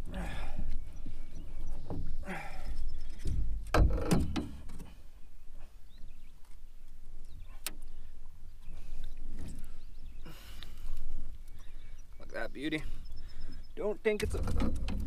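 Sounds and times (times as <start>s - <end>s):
knocks and clatters in boat: 0.0s - 5.1s, 13.3s - 15.0s.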